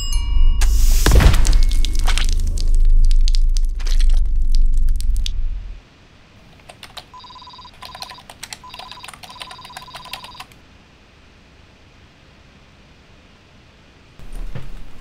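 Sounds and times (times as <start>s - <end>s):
machine rumbling and clattering: 1.0s - 5.8s
terminal printing typing clicks: 6.7s - 10.6s
short electronic beeps: 7.2s - 10.5s.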